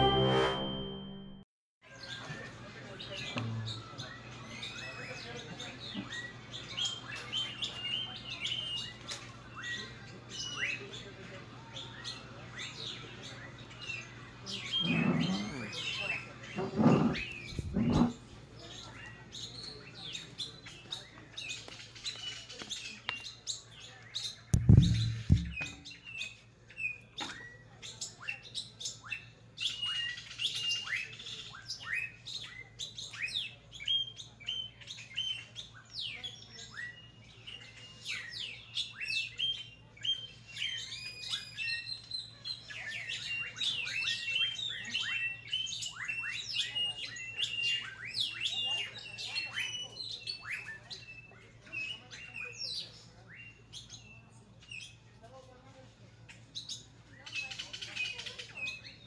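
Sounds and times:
small birds chirping: 0:01.8 - 0:59.0
brief low rumble: 0:24.6 - 0:25.6.

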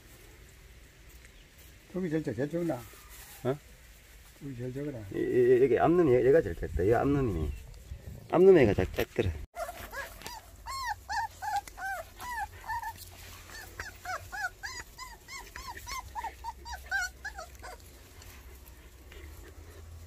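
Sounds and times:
puppies whimpering: 0:09.6 - 0:20.0.

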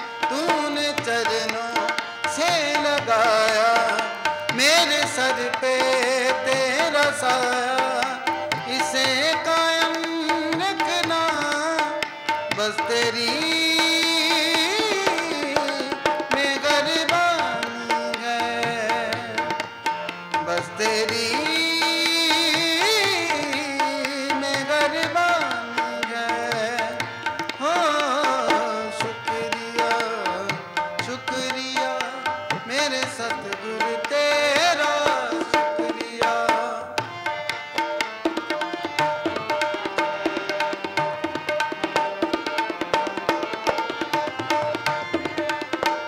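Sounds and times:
harmonium: 0:00.0 - 0:46.0
tabla: 0:00.0 - 0:46.0.

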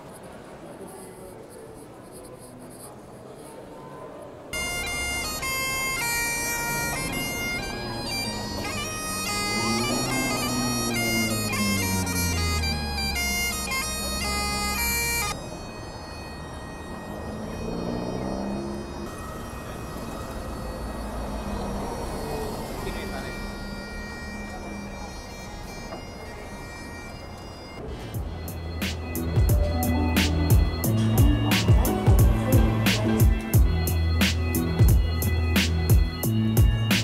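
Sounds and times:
bagpipes playing: 0:04.6 - 0:37.0.

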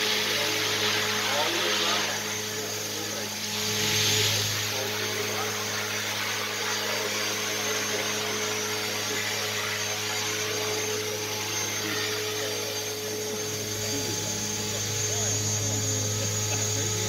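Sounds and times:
model aircraft whirring whine: 0:00.0 - 0:17.0.

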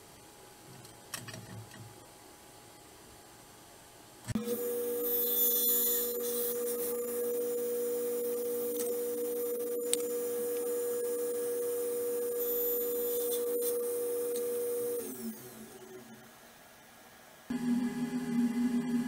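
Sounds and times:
table saw whine: 0:04.4 - 0:16.2.

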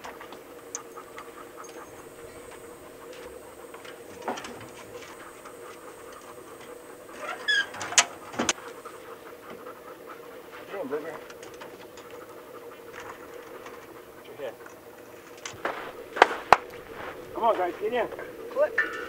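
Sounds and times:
dogs scrabbling and knocking: 0:00.0 - 0:08.9
metal doors and latches clanking: 0:00.8 - 0:08.7.

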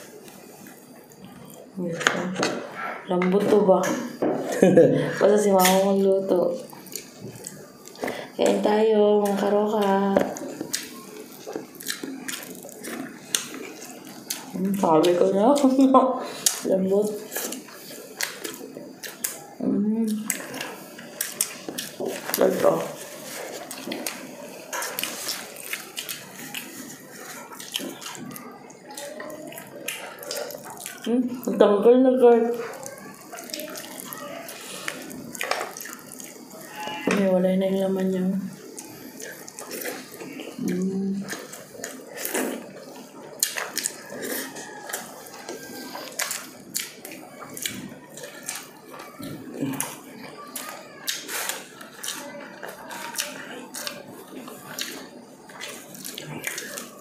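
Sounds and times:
wet chewing and lip smacks: 0:06.7 - 0:08.1, 0:09.2 - 0:15.7, 0:17.3 - 0:31.1, 0:32.5 - 0:36.6, 0:38.6 - 0:57.0.

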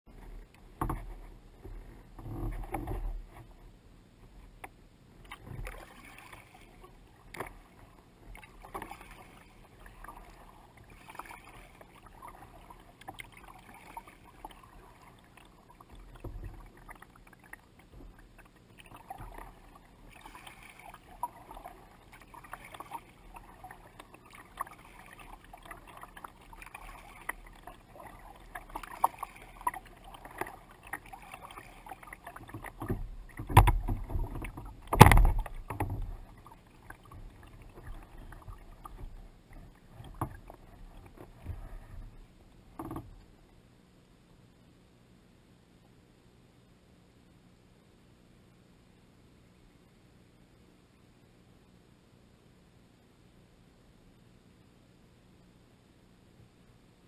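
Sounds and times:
water splashing against kayak: 0:00.1 - 0:43.4.

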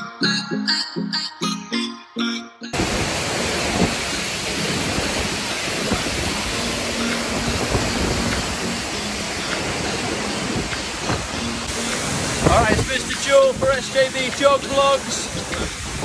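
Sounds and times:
plucked background music: 0:00.0 - 0:02.8, 0:06.5 - 0:16.0
waterfall roaring: 0:02.8 - 0:16.0.

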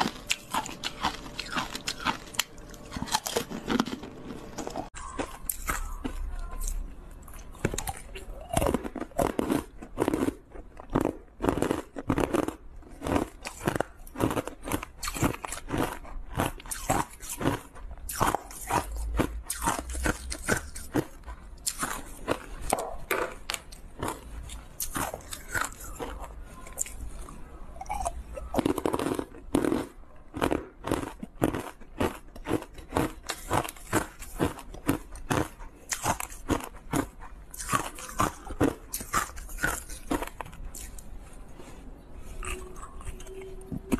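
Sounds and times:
ice being chewed crunching: 0:00.0 - 0:43.9.

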